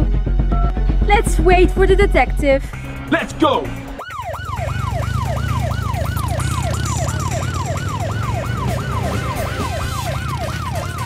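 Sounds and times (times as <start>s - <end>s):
low steady rumble: 0.0s - 4.0s
police siren: 3.8s - 11.0s.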